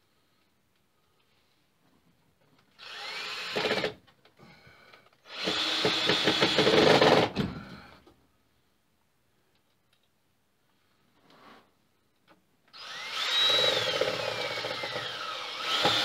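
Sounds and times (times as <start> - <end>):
drill driving screws into wood: 2.8 - 4.0, 5.2 - 7.4, 12.7 - 16.0.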